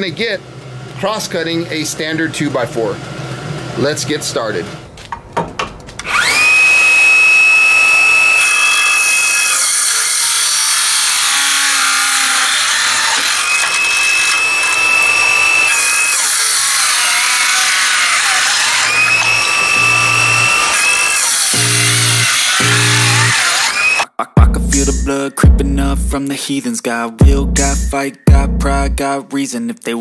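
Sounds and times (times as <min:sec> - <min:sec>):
circular saw whining: 0:00.0 - 0:05.0, 0:06.0 - 0:24.1
saw ripping through wood: 0:06.0 - 0:24.0.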